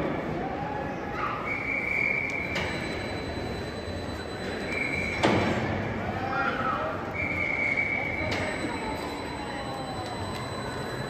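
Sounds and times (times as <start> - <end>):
train wheels squealing: 1.2 - 6.0, 7.1 - 11.0.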